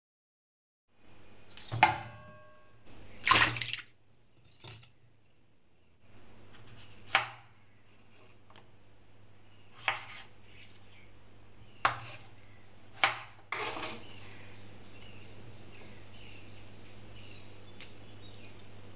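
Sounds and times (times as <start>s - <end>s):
low steady hum: 1.0s - 18.9s
knife cutting tomatoes: 6.5s - 7.4s, 9.7s - 10.9s, 11.8s - 14.2s
short scraping: 13.5s - 14.3s.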